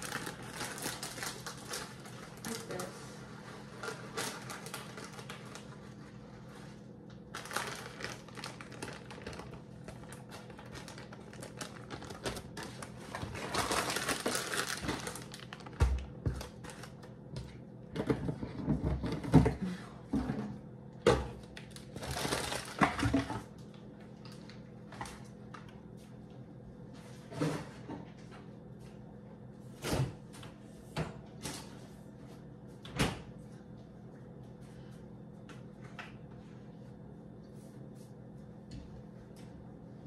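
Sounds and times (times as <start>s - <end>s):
plastic bag crinkling: 0.0s - 6.0s, 7.2s - 17.1s, 21.6s - 23.1s.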